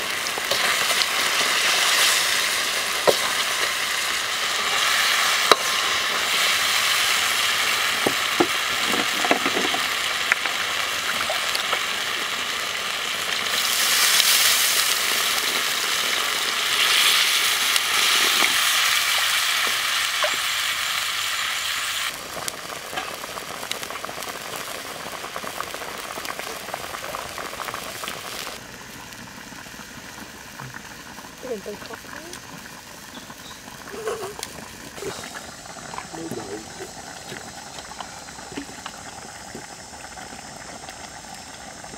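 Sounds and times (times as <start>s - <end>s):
curry sizzling in a wok: 0.0s - 41.9s
small crackles: 0.0s - 41.9s
hiss of water poured in: 33.6s - 41.9s.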